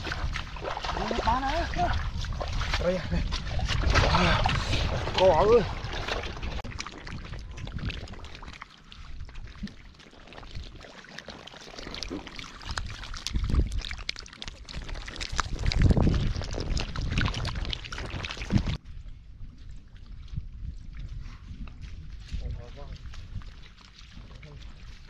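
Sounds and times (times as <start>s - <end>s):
fish flopping in mud: 2.0s - 18.8s.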